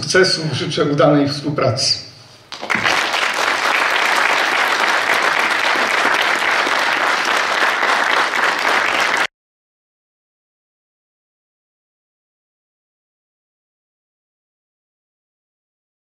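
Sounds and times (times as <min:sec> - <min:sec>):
audience applauding: 0:02.5 - 0:09.3.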